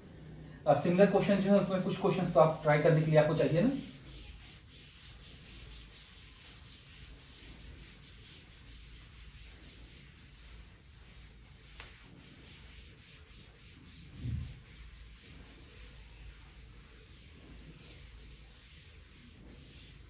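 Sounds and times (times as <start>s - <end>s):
duster rubbing chalkboard: 0.9s - 20.0s
soft low thump: 14.1s - 14.6s.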